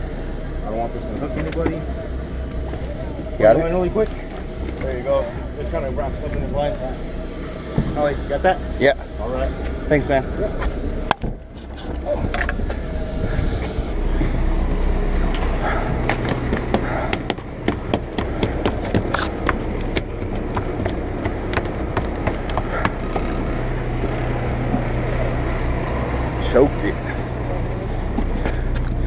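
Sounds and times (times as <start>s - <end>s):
boat engine droning: 0.0s - 29.0s
gear clicking and knocking on deck: 16.1s - 23.5s.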